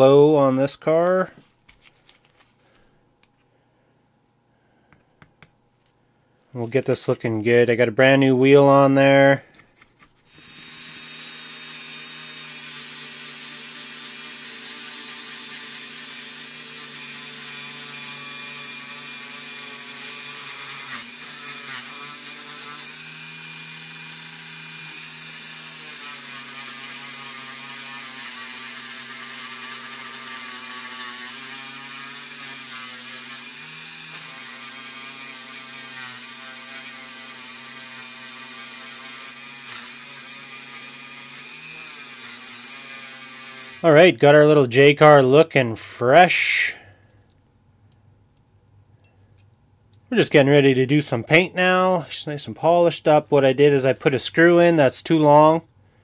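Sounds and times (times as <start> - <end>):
rotary tool motor whir: 10.3 - 43.8.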